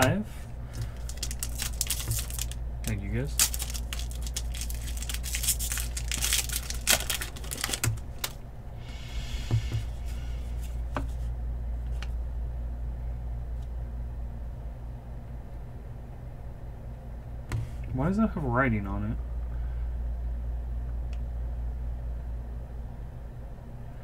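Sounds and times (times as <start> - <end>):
steady low hum: 0.0 - 24.0
foil wrapper crinkling and tearing: 0.7 - 8.4.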